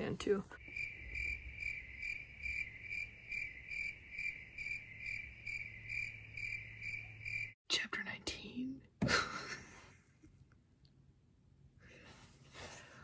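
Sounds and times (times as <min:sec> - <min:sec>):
cricket chirping: 0:00.6 - 0:07.6.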